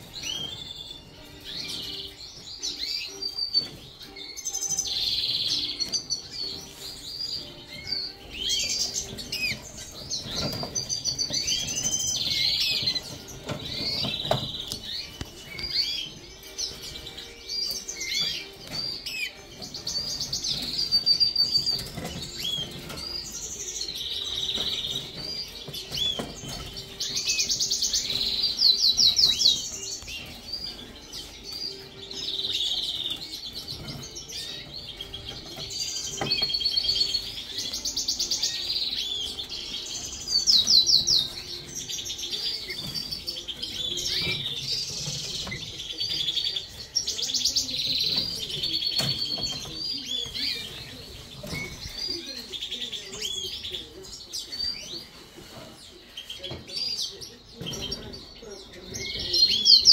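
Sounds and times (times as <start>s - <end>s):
wing flutters and cage rustles: 0.0s - 53.5s
canaries singing and trilling: 0.0s - 59.9s.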